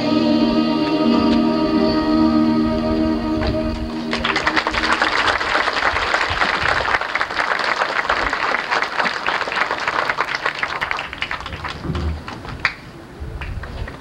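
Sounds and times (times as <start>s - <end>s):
crowd applauding: 4.0s - 14.0s.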